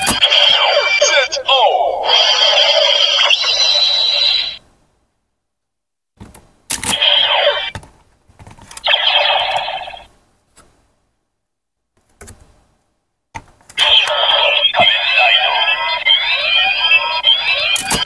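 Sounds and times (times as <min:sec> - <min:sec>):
electronic sound effects: 0:00.0 - 0:04.6, 0:06.9 - 0:07.7, 0:08.9 - 0:10.1, 0:13.8 - 0:18.0.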